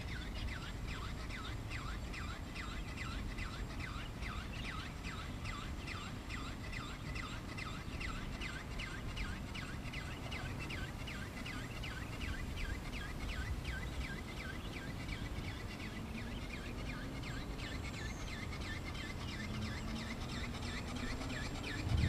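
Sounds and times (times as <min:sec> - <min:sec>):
wind rumble on microphone: 0:19.4 - 0:22.0.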